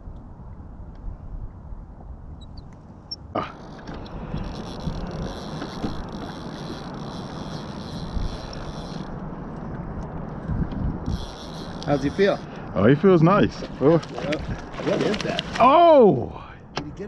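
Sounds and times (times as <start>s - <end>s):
boat engine rumble: 1.4s - 17.0s
fishing reel drag buzzing: 3.6s - 9.2s, 11.0s - 12.5s.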